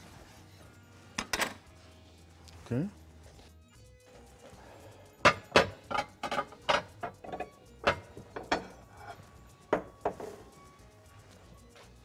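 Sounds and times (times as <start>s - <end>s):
utensils knocking on wooden board: 5.2s - 8.8s, 9.7s - 10.5s.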